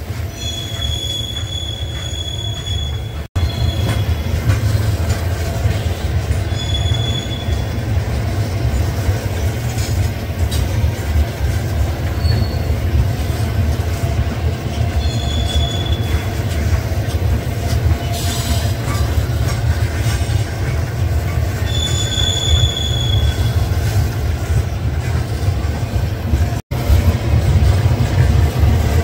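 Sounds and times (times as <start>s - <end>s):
rail cars rumbling past: 0.0s - 29.0s
high wheel squeals: 0.3s - 4.4s, 6.4s - 7.9s, 12.0s - 13.1s, 14.8s - 16.6s, 21.6s - 24.0s.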